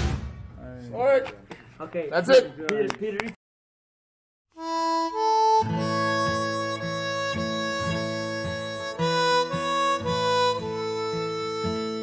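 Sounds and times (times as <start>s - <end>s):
held wavering lead melody: 4.6s - 12.0s
strummed accompaniment: 4.6s - 12.0s.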